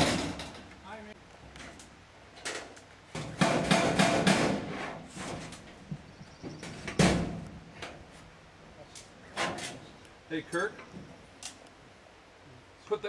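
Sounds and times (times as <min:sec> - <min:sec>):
loud bang on metal panel: 0:00.0 - 0:00.5, 0:03.2 - 0:04.9, 0:06.9 - 0:07.4
metal panels clattering: 0:00.0 - 0:00.8, 0:02.4 - 0:05.9, 0:06.6 - 0:08.1, 0:09.0 - 0:09.9.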